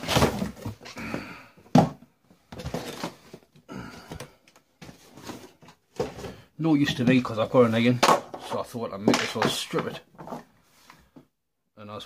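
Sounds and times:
cardboard rustling and scraping: 0.0s - 1.0s, 2.4s - 3.5s, 4.8s - 8.0s.

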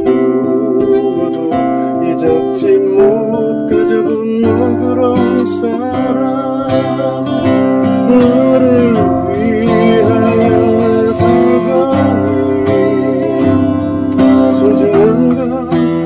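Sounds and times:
acoustic guitar: 0.0s - 16.0s
man singing: 0.0s - 16.0s.

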